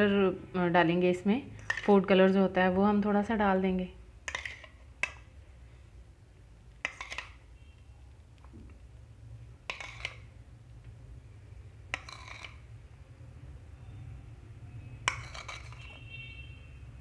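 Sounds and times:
utensils clinking against a pot: 15.0s - 16.0s.

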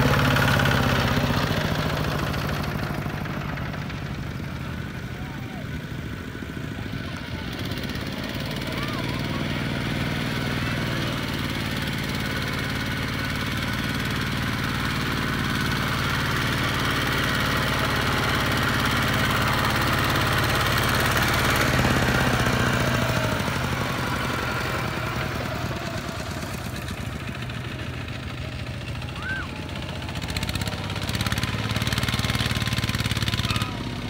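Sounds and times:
diesel tractor engine chugging: 0.0s - 34.0s.

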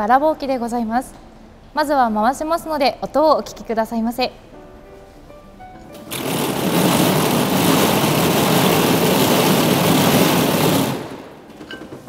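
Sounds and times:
spinning machine rattling: 6.0s - 12.0s.

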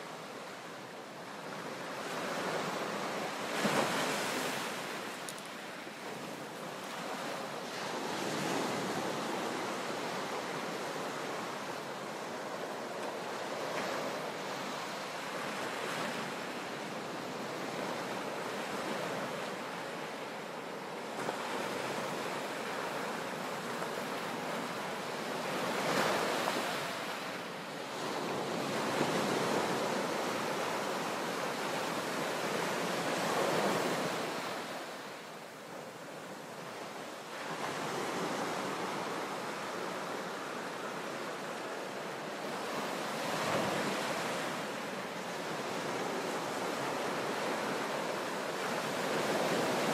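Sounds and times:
waves crashing in sea cave: 1.8s - 35.7s.

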